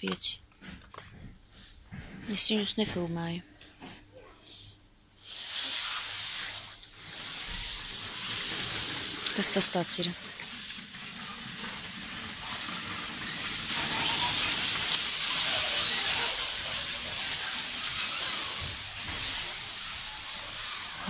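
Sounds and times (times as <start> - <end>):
steady hiss: 4.4 - 21.0.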